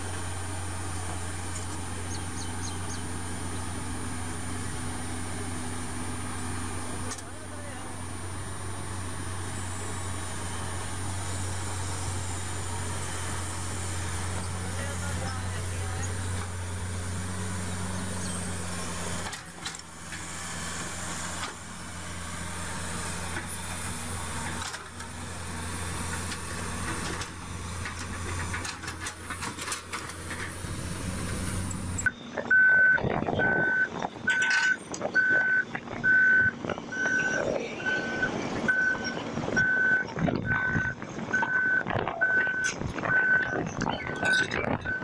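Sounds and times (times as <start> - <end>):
excavator diesel engine humming: 0.0 - 45.0
reversing alarm beeping: 32.0 - 45.0.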